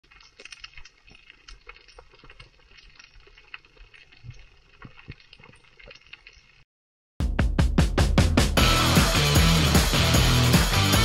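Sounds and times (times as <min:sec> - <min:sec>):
underwater clicking and crackling: 0:00.0 - 0:06.7.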